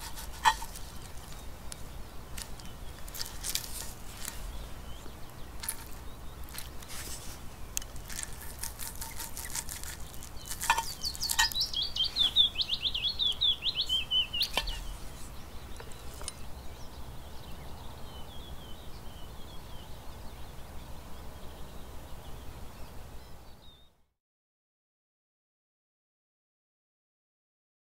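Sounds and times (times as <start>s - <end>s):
clicks and crackles from pan: 0.0s - 1.4s, 7.8s - 11.7s
songbird trilling: 0.0s - 20.8s.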